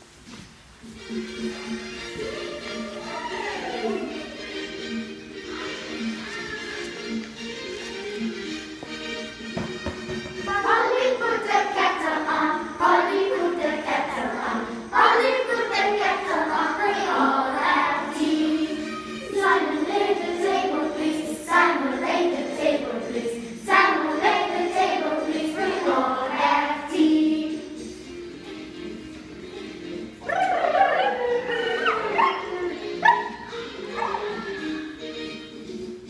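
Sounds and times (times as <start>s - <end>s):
children singing together: 10.4s - 28.1s.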